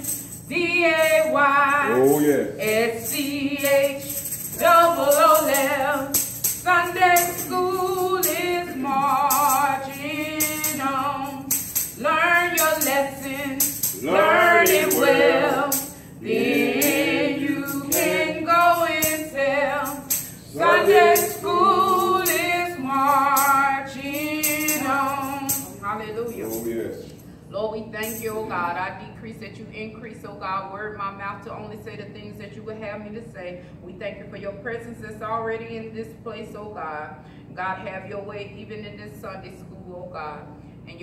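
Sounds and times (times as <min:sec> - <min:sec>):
woman singing with vibrato: 0:00.0 - 0:26.4
tambourine jingling: 0:00.0 - 0:28.7.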